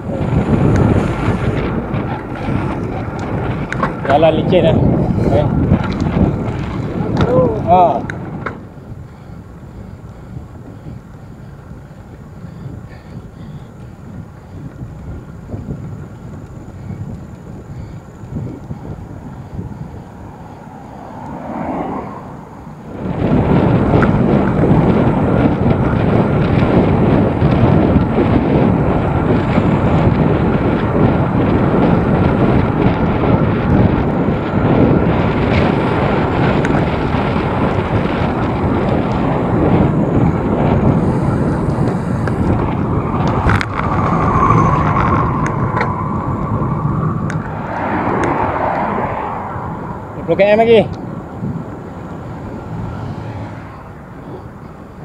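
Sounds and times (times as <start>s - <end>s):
wind rushing over microphone: 0.0s - 55.0s.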